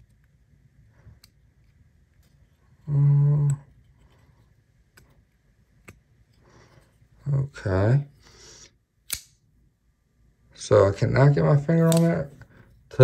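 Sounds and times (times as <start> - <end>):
man humming: 2.8 - 3.7
folding knife clicks: 11.9 - 12.1.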